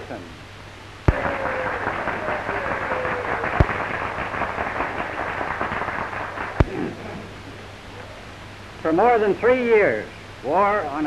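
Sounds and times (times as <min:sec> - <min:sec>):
audience applauding: 0:01.1 - 0:07.0.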